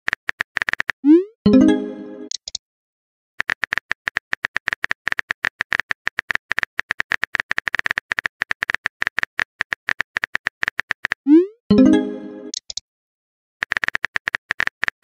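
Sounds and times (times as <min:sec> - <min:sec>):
phone keyboard typing clicks: 0:00.1 - 0:01.0, 0:03.4 - 0:11.2, 0:12.5 - 0:12.8, 0:13.6 - 0:15.0.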